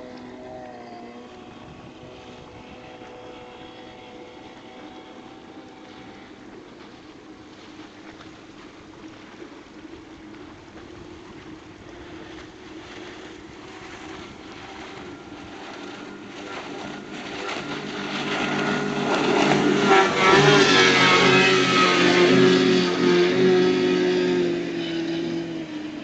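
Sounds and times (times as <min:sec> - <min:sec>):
boat spray and wake hissing: 0:00.0 - 0:26.0
outboard motor running: 0:00.0 - 0:26.0.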